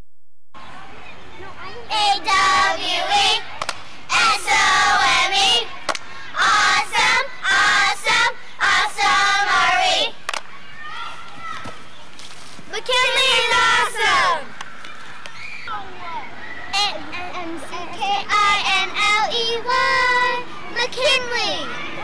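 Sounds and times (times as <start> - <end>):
children singing in unison: 1.9 - 3.4, 4.1 - 5.7, 6.4 - 10.2, 17.9 - 20.5.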